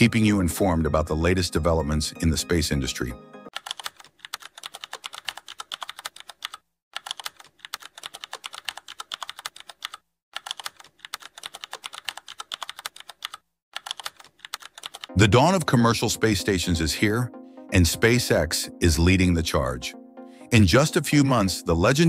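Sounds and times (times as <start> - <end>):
keyboard typing: 3.5 - 15.2.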